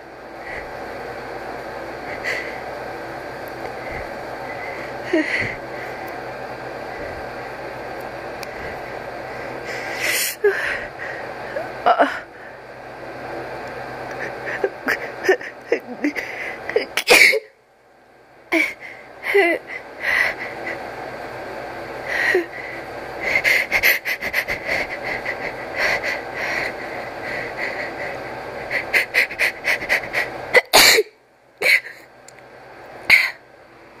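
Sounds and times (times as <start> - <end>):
gasping breaths: 2.0 - 2.7, 3.6 - 6.0, 22.0 - 30.4
person sneezing: 16.8 - 17.5, 29.3 - 32.0.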